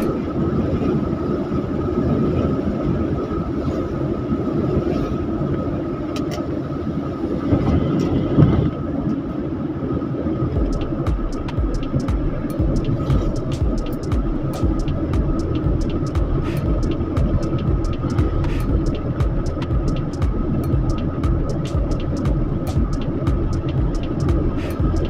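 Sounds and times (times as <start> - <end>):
vehicle driving rumble: 10.5 - 25.0.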